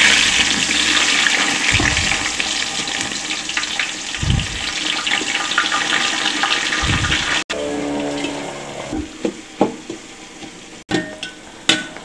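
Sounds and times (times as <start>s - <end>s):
onions sizzling in oil: 0.0s - 7.4s
dull thumps: 1.7s - 2.4s, 4.2s - 4.7s.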